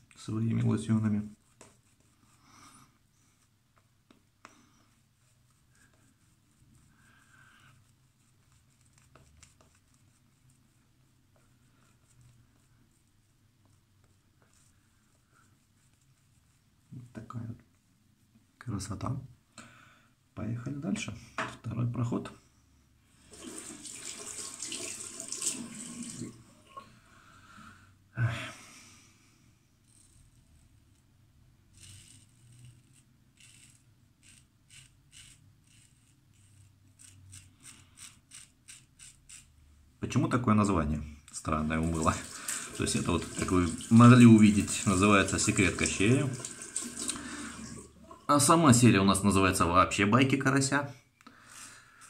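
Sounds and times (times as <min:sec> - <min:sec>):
tap water running into sink: 0:23.3 - 0:26.4, 0:41.9 - 0:48.2.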